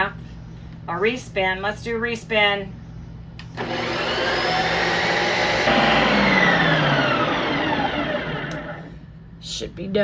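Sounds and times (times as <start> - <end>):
ice cream maker motor whirring: 3.5 - 8.9.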